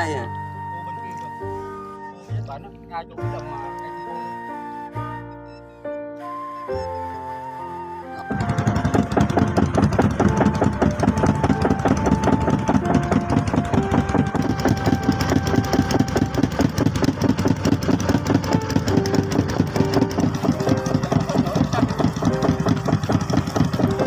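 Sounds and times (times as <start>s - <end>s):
boat motor engine clattering: 7.8s - 24.0s.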